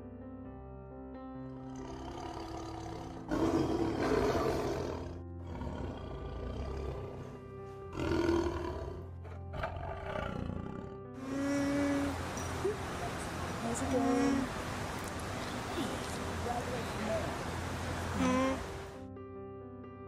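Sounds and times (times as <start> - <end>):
background music: 0.0 - 20.0
tiger roaring: 1.7 - 12.2.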